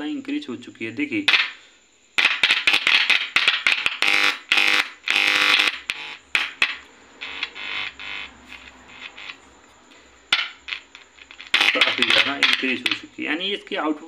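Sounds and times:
loudspeaker buzzing with mains hum: 0.0 - 14.0
clicks: 2.2 - 13.1.

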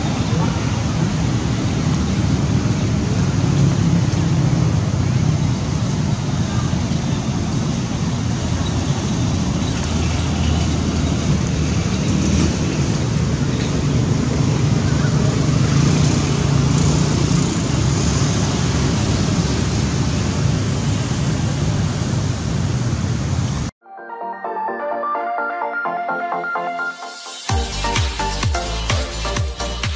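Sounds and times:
low rumble of outdoor noise: 0.0 - 23.7.

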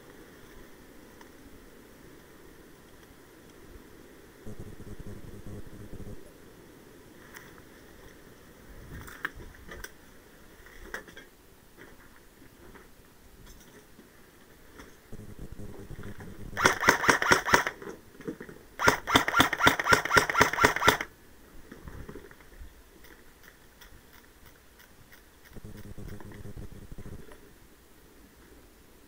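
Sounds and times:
airsoft rifle bursts: 16.5 - 17.8, 18.8 - 21.1.

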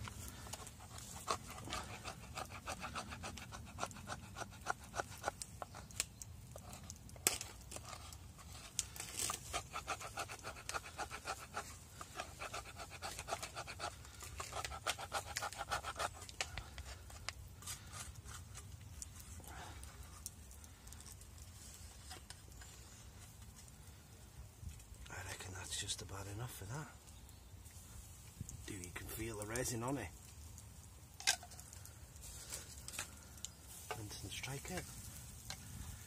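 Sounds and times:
knife scraping wood: 0.0 - 18.7.

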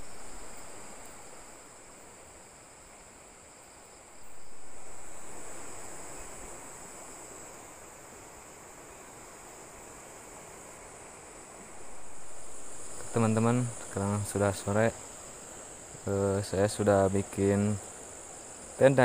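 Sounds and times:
fast-flowing river rushing: 4.3 - 19.0.

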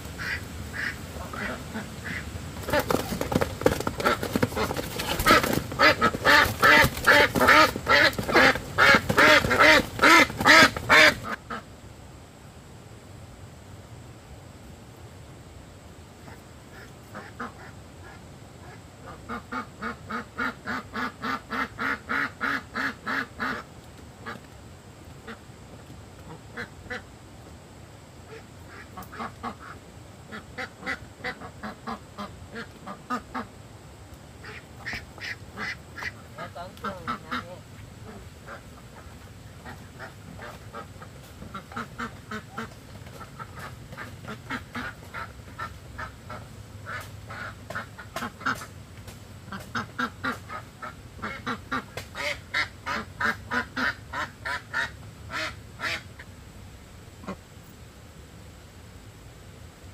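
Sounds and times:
ducks quacking: 0.2 - 11.7, 16.2 - 24.4, 28.3 - 33.5, 34.4 - 48.7, 49.5 - 56.3.

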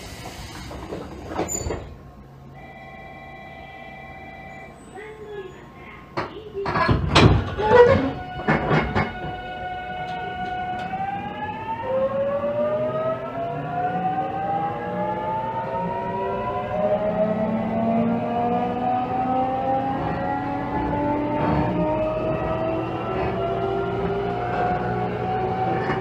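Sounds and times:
electric train motor whine: 2.6 - 4.7, 7.5 - 26.0.

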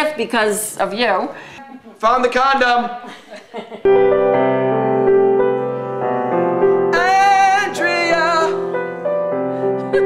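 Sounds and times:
grand piano chords: 3.8 - 10.0.

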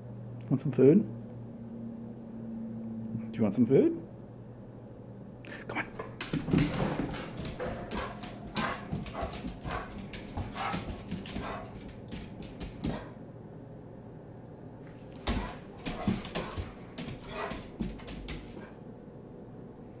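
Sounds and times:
claws clicking on tile floor: 6.2 - 13.1, 15.1 - 18.7.

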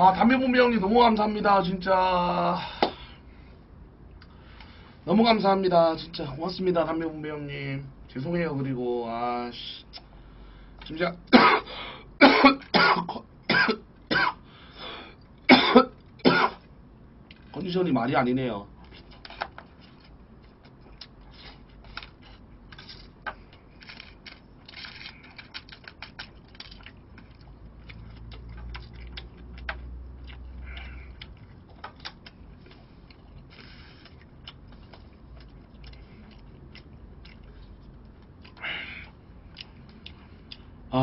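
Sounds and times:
chewing: 18.8 - 40.7.

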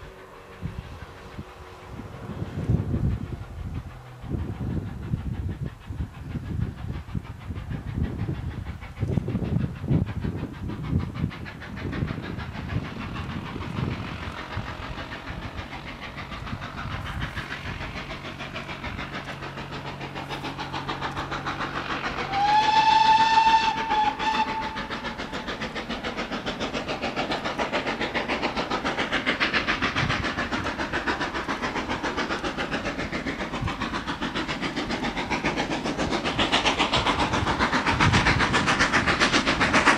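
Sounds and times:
steam locomotive chuffing: 0.0 - 39.9
steam locomotive whistle: 22.2 - 25.0.

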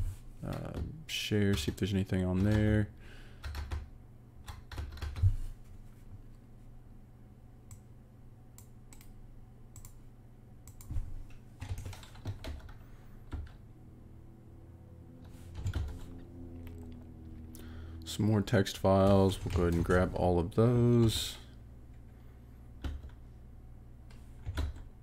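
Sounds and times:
computer keyboard typing: 1.5 - 2.8, 3.4 - 5.3, 11.6 - 13.6, 15.5 - 16.9, 19.0 - 20.1, 22.8 - 23.2, 24.4 - 24.9.

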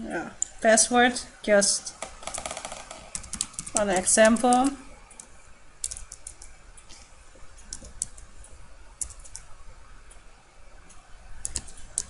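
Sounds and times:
computer keyboard typing: 2.0 - 6.6, 7.7 - 8.3, 9.0 - 9.5, 11.4 - 12.0.

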